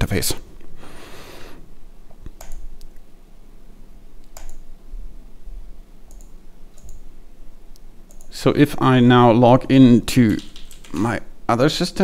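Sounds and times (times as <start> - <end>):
computer mouse clicks: 2.3 - 3.0, 4.2 - 4.6, 6.1 - 7.0, 7.7 - 8.3, 10.3 - 11.0.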